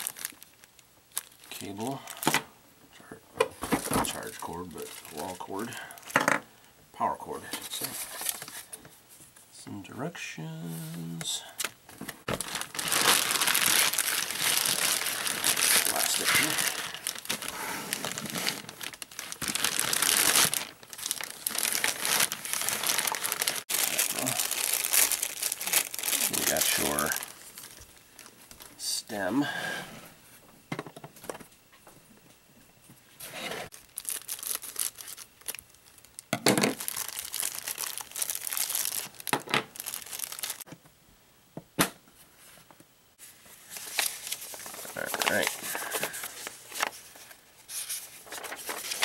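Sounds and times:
plastic bag crinkling: 0.0s - 2.4s, 4.0s - 6.4s, 11.5s - 28.9s, 33.7s - 40.7s, 43.6s - 49.0s.

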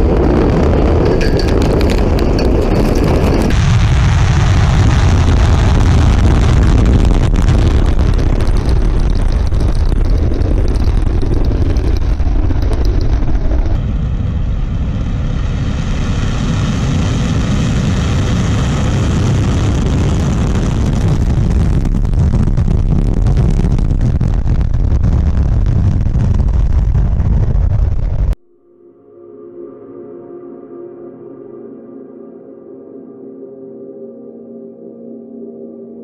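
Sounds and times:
rocket engines rumbling: 0.0s - 28.4s.

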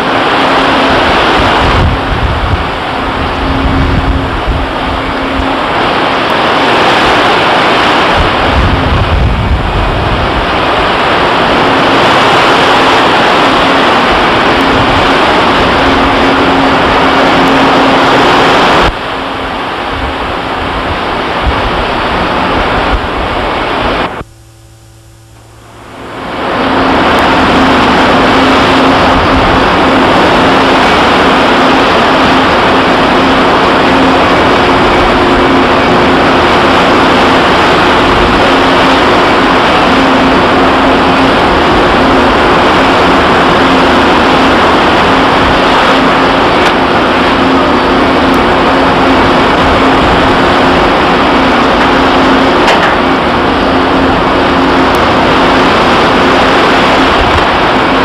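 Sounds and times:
churning sea water: 0.0s - 58.0s
faint steady hum: 0.0s - 58.0s.

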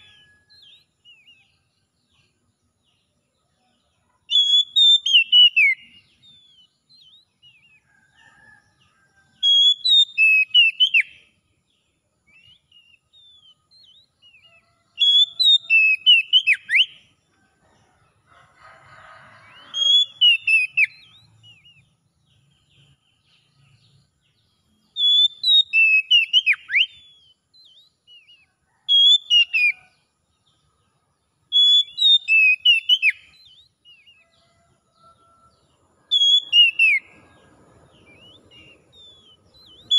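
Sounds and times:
bird singing whistled phrases: 4.3s - 7.7s, 9.4s - 11.2s, 12.3s - 17.0s, 19.5s - 21.8s, 25.0s - 29.8s, 31.5s - 34.2s, 36.1s - 37.1s.

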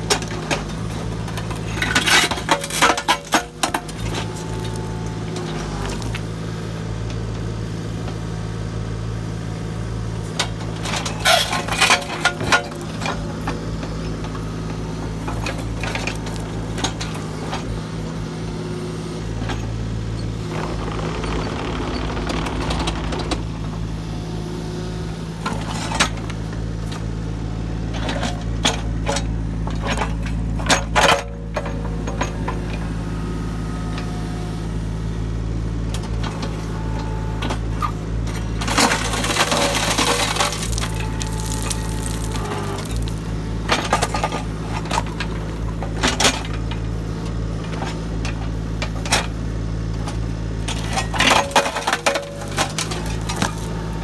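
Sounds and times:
diesel engine running: 0.0s - 54.0s
hydraulic jaws crushing concrete: 38.3s - 45.1s, 50.7s - 54.0s
concrete cracking: 38.7s - 43.4s.

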